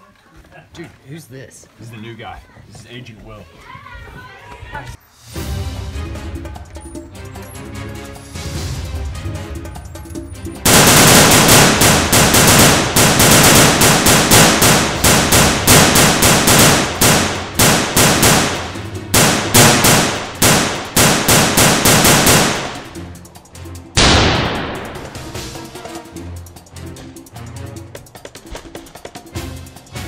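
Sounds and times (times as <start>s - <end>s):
background music: 5.1s - 30.0s
automatic gunfire bursts: 10.7s - 23.0s
loud gunshot: 10.7s - 23.0s, 24.0s - 25.4s.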